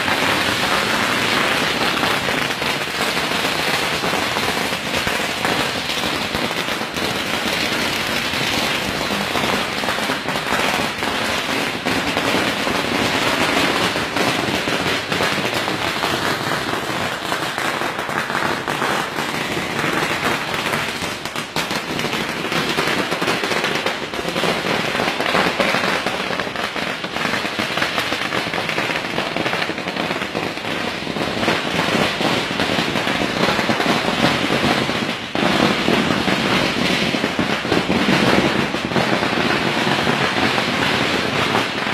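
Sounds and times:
firecrackers popping: 0.0 - 41.9.

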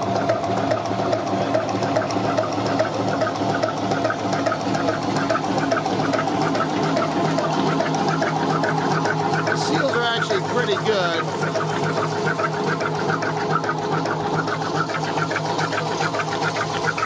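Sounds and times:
machine drone: 0.0 - 17.0
pump rhythmic clatter: 0.0 - 17.0.

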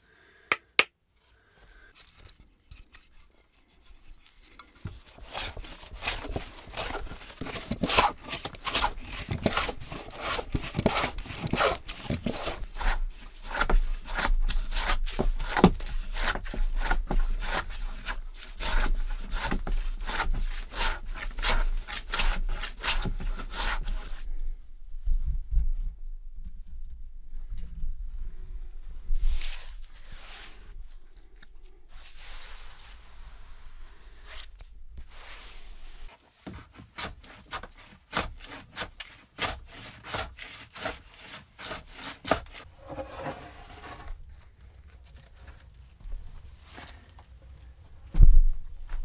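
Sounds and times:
hand plane shaving wood: 3.7 - 24.2, 36.5 - 44.2.

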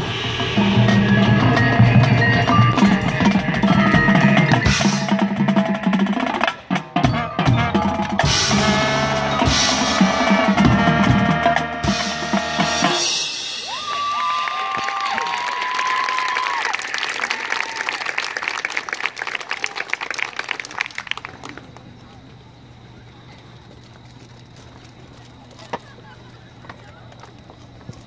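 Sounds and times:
marching band playing: 0.0 - 14.1
drum rolls: 0.0 - 16.6
crowd applause: 13.6 - 22.7.

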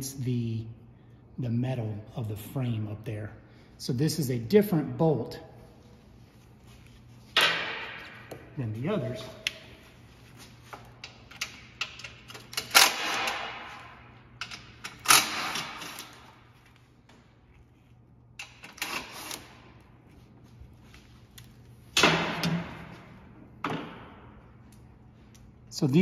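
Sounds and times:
bolts and plastic clicking: 10.7 - 13.5, 14.4 - 16.3.

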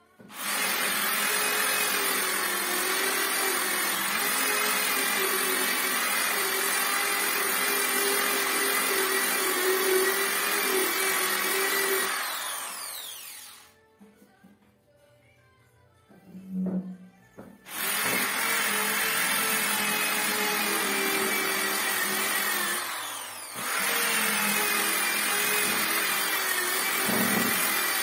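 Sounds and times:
electric sander running: 10.4 - 13.6, 17.7 - 28.0.

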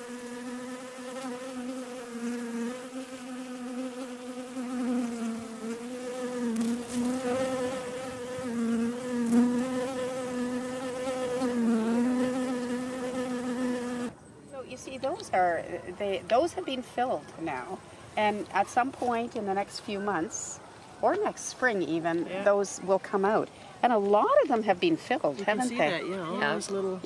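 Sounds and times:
bee buzzing: 0.0 - 14.2.

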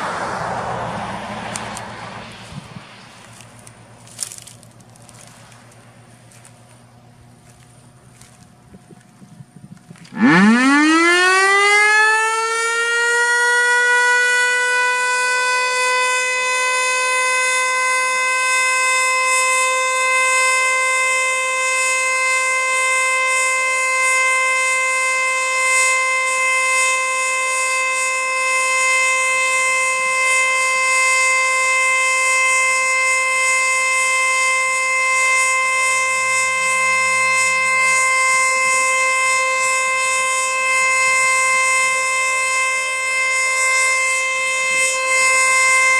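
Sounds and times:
outdoor warning siren: 0.0 - 45.9.

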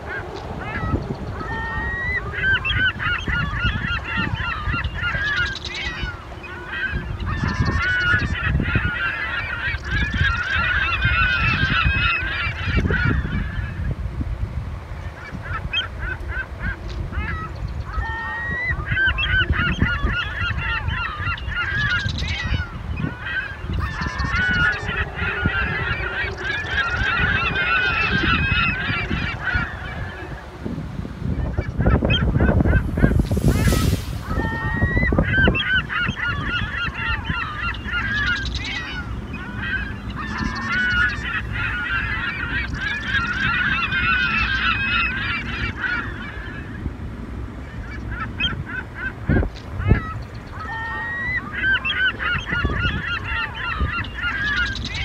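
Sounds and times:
flock of birds calling: 0.0 - 14.0, 14.8 - 55.0
steady low rumble: 15.9 - 50.5.

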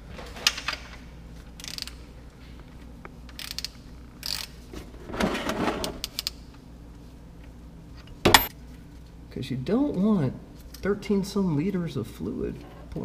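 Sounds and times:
socket ratchet clicking: 1.6 - 2.0, 3.3 - 4.6.

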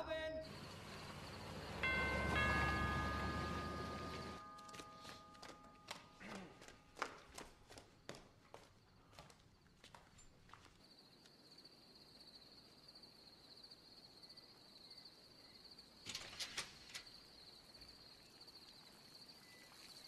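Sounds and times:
crickets chirping: 0.0 - 5.3, 6.3 - 20.0.

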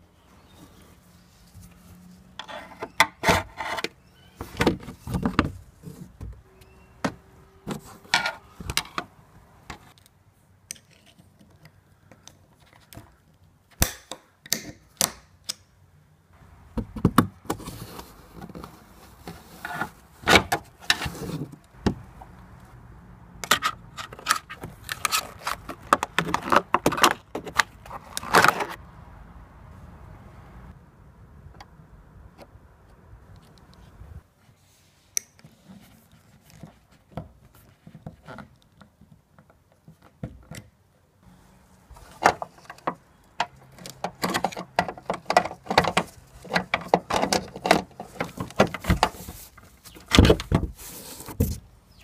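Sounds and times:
handling clicks and knocks: 23.4 - 28.8, 42.0 - 51.6.

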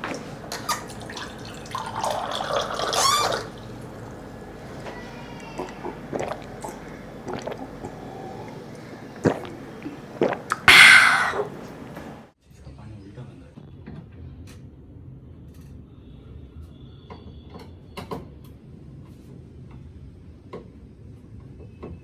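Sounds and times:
water running into a glass: 0.5 - 4.4, 5.0 - 12.0.

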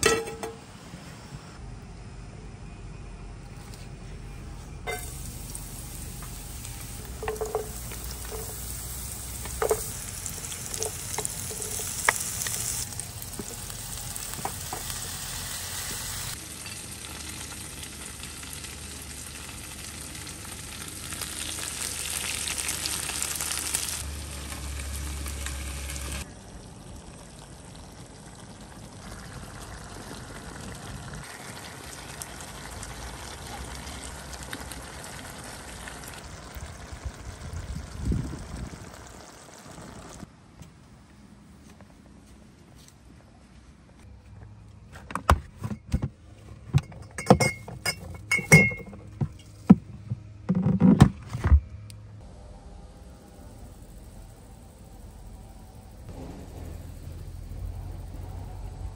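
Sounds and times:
food sizzling in a frying pan: 4.9 - 26.3.

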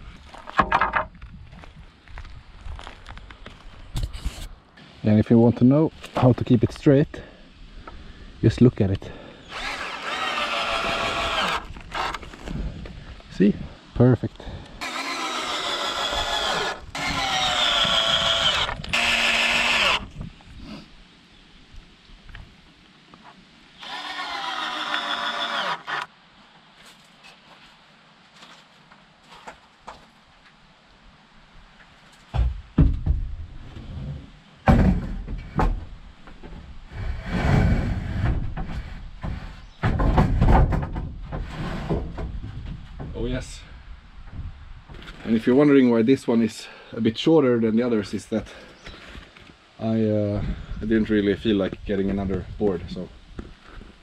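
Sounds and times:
wood clatter and scraping: 0.1 - 1.8, 9.5 - 13.0, 26.8 - 30.2, 32.0 - 43.2, 44.9 - 45.4
wooden boards knocking: 0.5 - 1.2, 39.2 - 43.1
power drill driving screws: 9.5 - 12.4, 14.8 - 20.1, 23.8 - 26.1.

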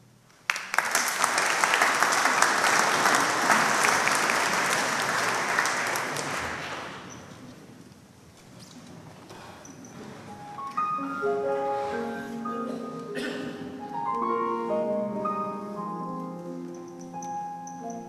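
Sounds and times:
audience applauding: 0.4 - 7.1.

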